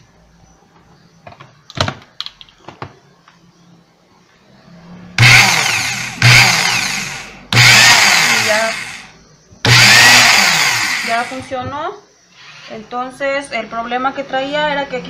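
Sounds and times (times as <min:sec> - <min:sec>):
electric impact wrench running: 0:05.2 - 0:11.5.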